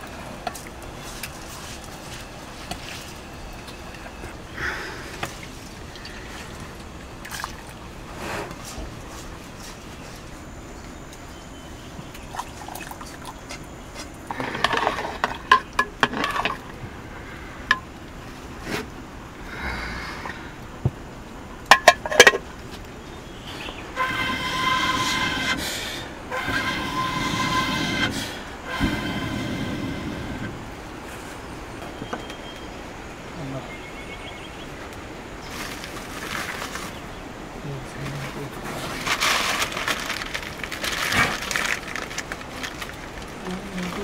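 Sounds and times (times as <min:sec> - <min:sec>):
blowing through fire pipe: 0:23.5 - 0:30.8.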